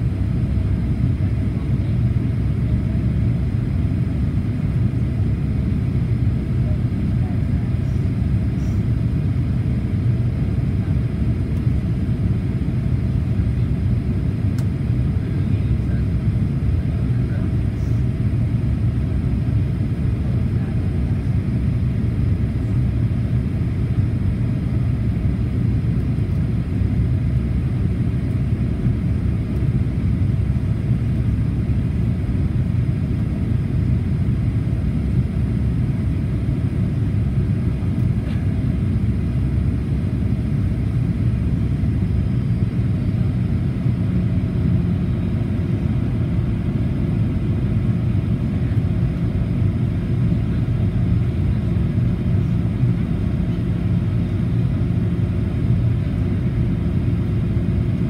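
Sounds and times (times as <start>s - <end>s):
jet engines rumbling: 0.0s - 58.0s.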